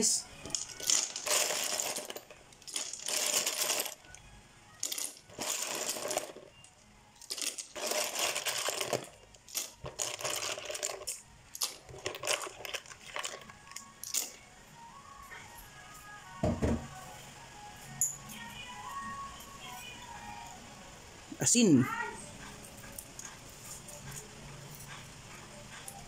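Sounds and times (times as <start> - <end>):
shellfish clattering together: 0.4 - 4.2, 4.8 - 6.5, 7.2 - 14.4.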